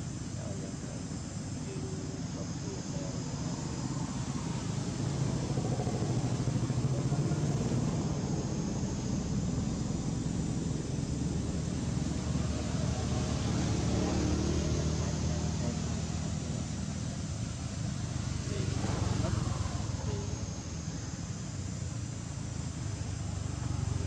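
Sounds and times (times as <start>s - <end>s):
engine rumbling steadily: 0.0s - 24.0s.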